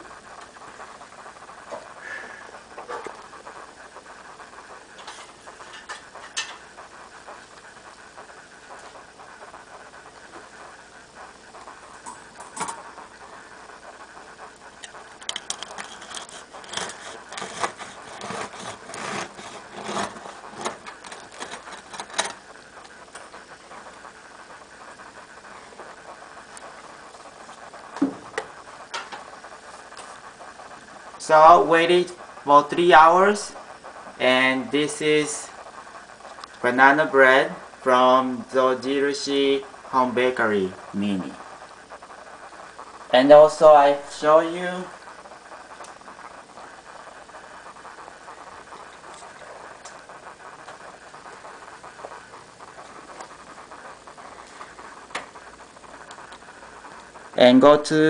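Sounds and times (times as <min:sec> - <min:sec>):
knife sawing through bread crust: 0:16.1 - 0:20.7.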